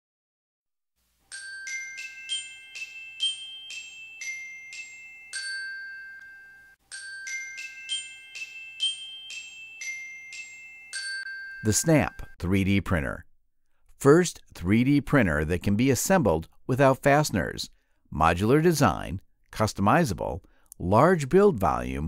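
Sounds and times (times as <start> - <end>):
bell-like jingle notes: 1.3 - 12.4.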